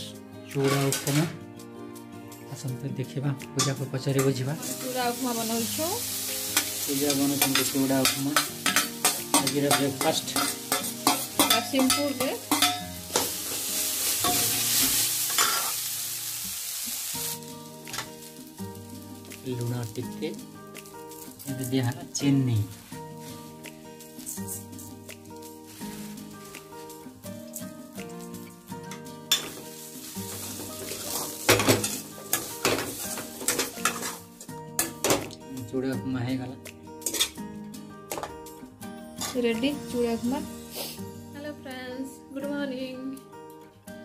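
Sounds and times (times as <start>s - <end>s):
food sizzling: 0.0s - 2.7s, 3.3s - 41.6s
spoon scraping and clinking in a pan: 6.6s - 13.6s, 14.2s - 15.8s, 29.3s - 34.2s, 37.0s - 37.4s.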